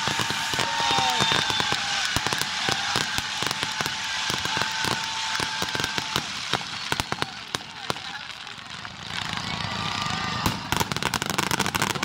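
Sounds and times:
high firework whistle: 0.0 - 8.2
fireworks popping and crackling: 0.0 - 12.0.

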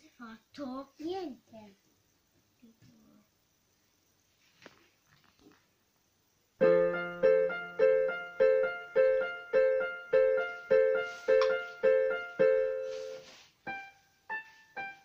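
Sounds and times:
keyboard piano chords: 6.6 - 15.0.

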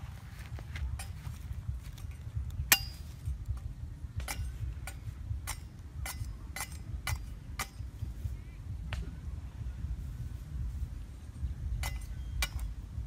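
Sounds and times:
machete chopping bamboo: 2.7 - 3.2.

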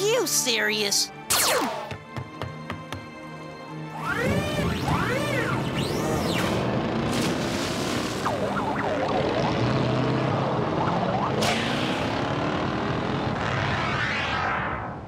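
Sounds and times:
engine drone: 3.8 - 15.0.

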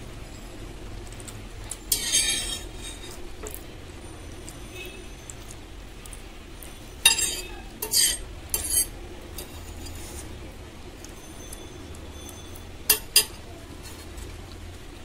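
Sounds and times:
metal fork clinking on a plate: 1.9 - 3.6, 7.0 - 10.0, 12.3 - 13.4.

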